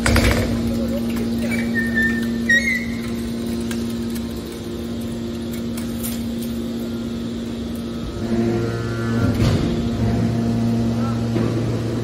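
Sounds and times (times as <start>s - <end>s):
hydraulic baler humming: 0.0s - 12.0s
high metallic squeaks: 1.4s - 3.3s.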